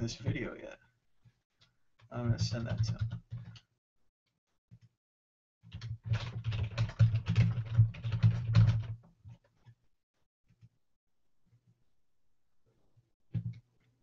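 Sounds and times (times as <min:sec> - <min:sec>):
typing on a keyboard: 0:02.3 - 0:03.7, 0:05.7 - 0:09.0.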